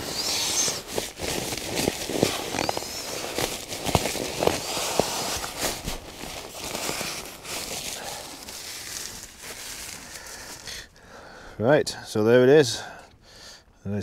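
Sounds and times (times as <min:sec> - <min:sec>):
nylon fabric rustling: 0:00.0 - 0:11.0.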